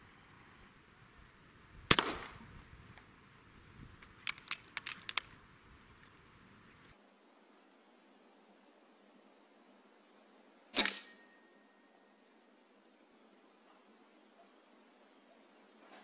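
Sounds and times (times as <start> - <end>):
air rifle shot: 1.9 - 2.5, 10.8 - 11.2
sharp clicks: 4.0 - 5.4.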